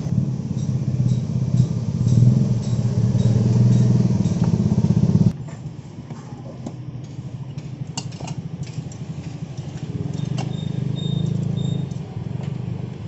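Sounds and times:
motorcycle engine idling: 0.0 - 5.3.

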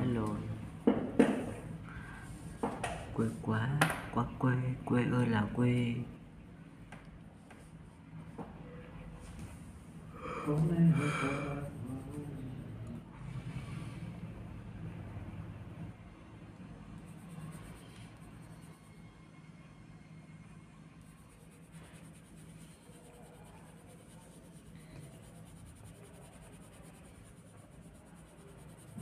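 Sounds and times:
faint low hum: 0.0 - 29.0
pencil scratching on paper: 11.3 - 12.9, 17.0 - 18.9, 21.0 - 29.0.

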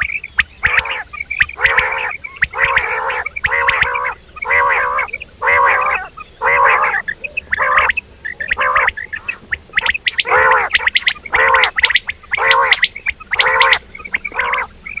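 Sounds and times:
quail calling: 0.0 - 15.0
sharp high chirps: 4.8 - 15.0.

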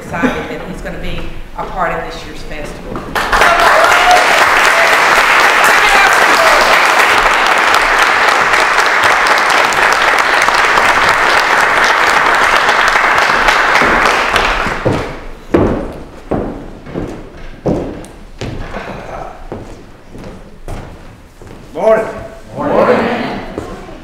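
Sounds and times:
audience applauding: 3.1 - 15.3.

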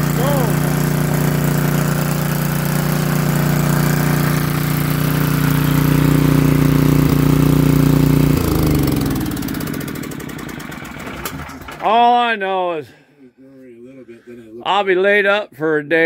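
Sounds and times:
generator engine running: 0.0 - 12.2.

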